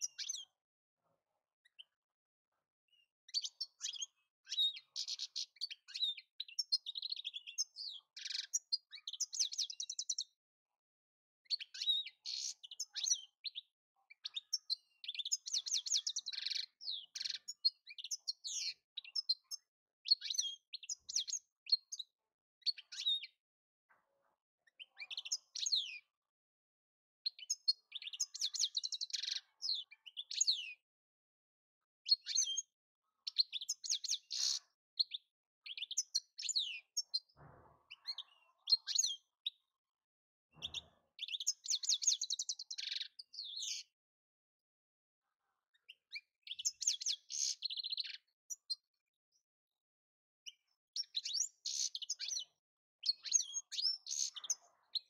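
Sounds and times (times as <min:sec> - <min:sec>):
goldfinch twittering song: 0:11.5 - 0:22.0, 0:27.2 - 0:30.8, 0:32.0 - 0:39.6, 0:40.6 - 0:43.9, 0:45.8 - 0:48.8, 0:50.5 - 0:55.0.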